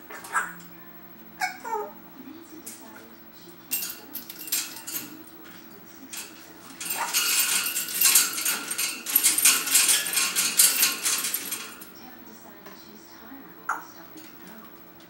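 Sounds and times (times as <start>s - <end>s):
metal clinking in wire birdcage: 3.7s - 12.0s.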